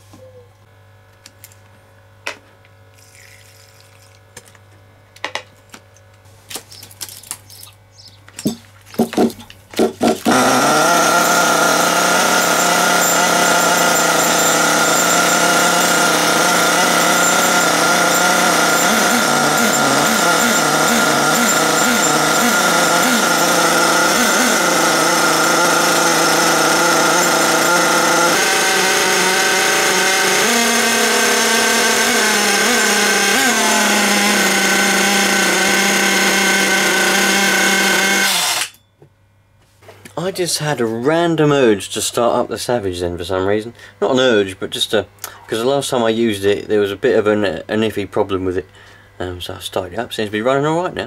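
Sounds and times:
model truck engine idling: 0:10.3 - 0:38.6.

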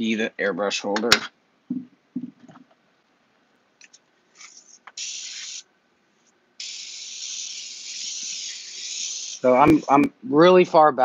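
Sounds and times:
airbrush spraying air hiss: 0:04.4 - 0:05.7, 0:06.6 - 0:10.1.

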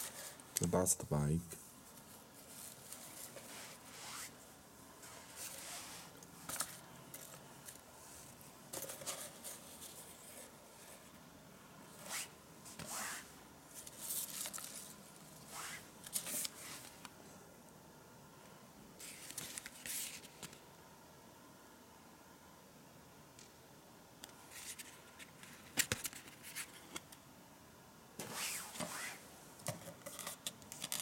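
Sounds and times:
paper packaging rustling: 0:01.9 - 0:04.4, 0:06.4 - 0:11.1, 0:13.7 - 0:17.0, 0:19.0 - 0:20.6, 0:29.7 - 0:31.0.

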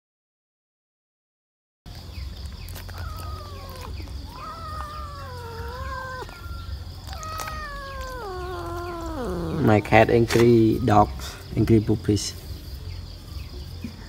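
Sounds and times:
cat yowling: 0:02.7 - 0:11.2.

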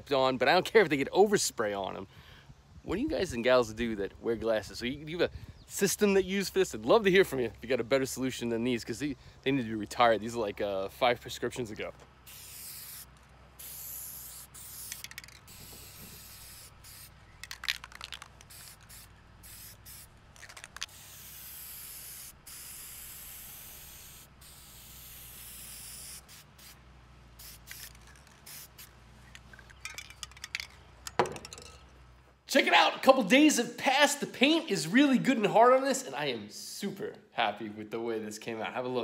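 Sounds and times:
spray paint can hissing: 0:12.3 - 0:26.8, 0:27.4 - 0:30.5.

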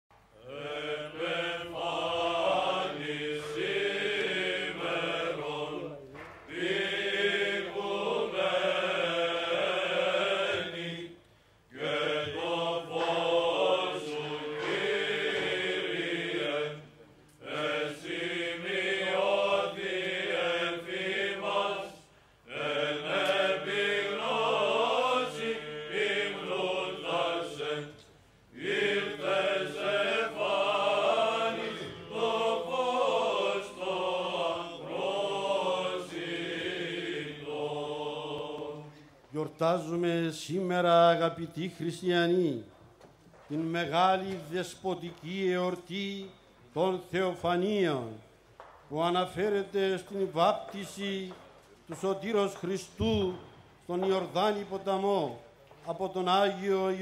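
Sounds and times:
voices chanting a melody: 0:00.4 - 0:39.0.

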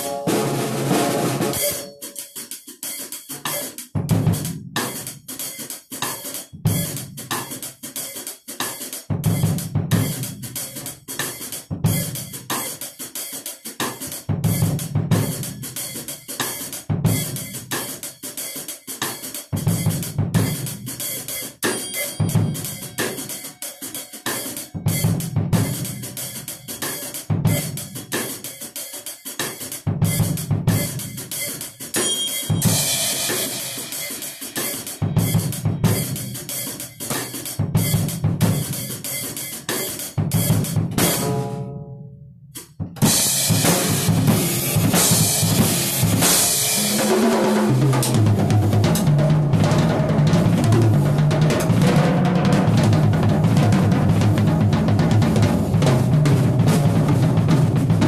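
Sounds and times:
acoustic drum kit groove: 0:00.0 - 0:41.7, 0:42.5 - 0:58.0
cymbal crash: 0:32.0 - 0:38.0, 0:43.0 - 0:49.2.

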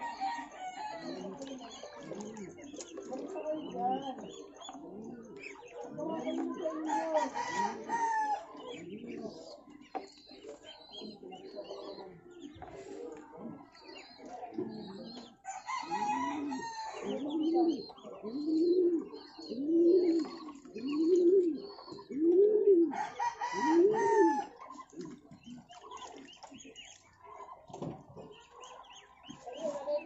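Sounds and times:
low bird calls: 0:07.2 - 0:30.0.

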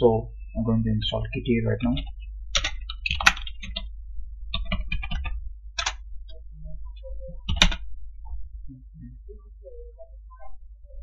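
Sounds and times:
low hum: 0:00.0 - 0:11.0
computer keyboard typing: 0:01.8 - 0:03.9, 0:04.5 - 0:06.0, 0:07.4 - 0:07.9.

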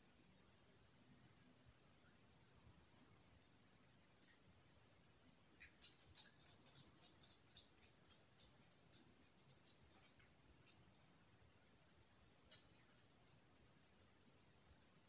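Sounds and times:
dog claws clicking on floor: 0:05.6 - 0:11.1, 0:12.5 - 0:13.4.

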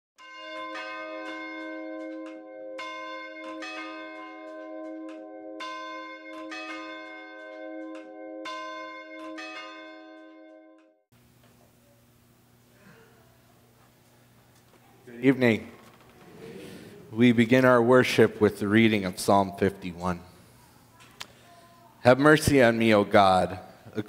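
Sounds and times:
church bells ringing: 0:00.2 - 0:10.9, 0:15.2 - 0:20.4.

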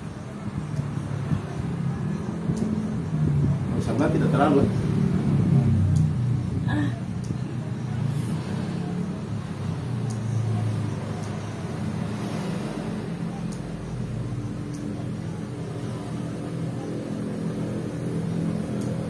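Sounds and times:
faint clicks: 0:10.0 - 0:10.3.

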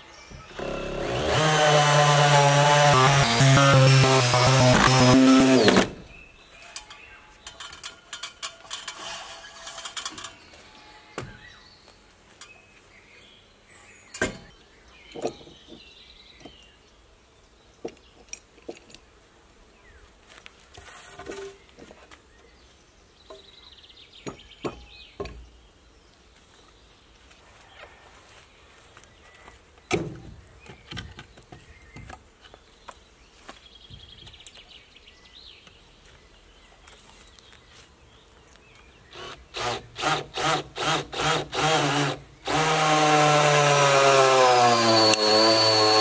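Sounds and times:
scraping: 0:06.6 - 0:10.8.

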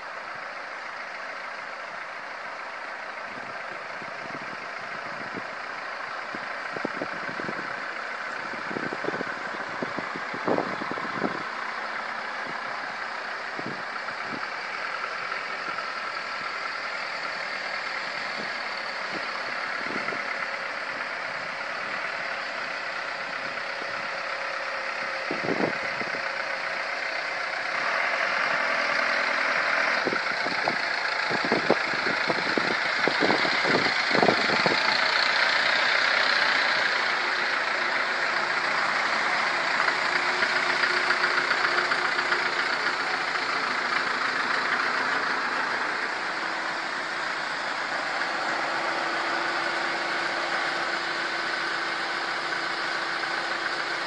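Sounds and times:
vehicle engines rolling past: 0:00.0 - 0:54.0.

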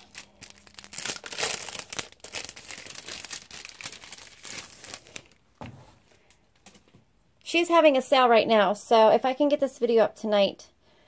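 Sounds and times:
packaging crinkling and rustling: 0:00.0 - 0:05.6.

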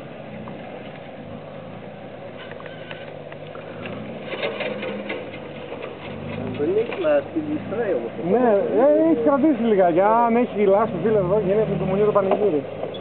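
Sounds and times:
engine running at low revs: 0:00.0 - 0:13.0
sharp clicks and knocks: 0:02.4 - 0:07.1.

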